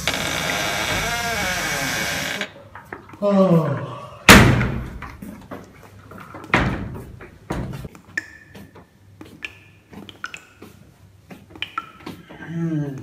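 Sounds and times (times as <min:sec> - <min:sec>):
door banging shut: 0:04.3 - 0:05.0.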